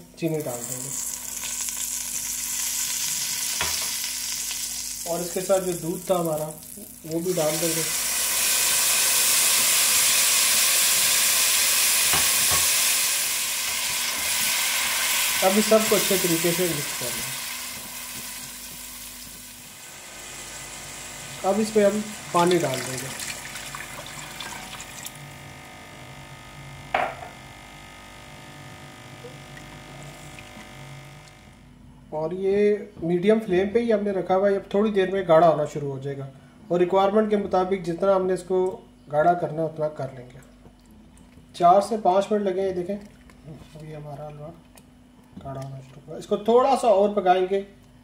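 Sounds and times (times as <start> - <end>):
milk sizzling and hissing in pot: 0.4 - 25.2
water pouring and splashing: 22.6 - 25.2
sharp knock: 26.9 - 27.4.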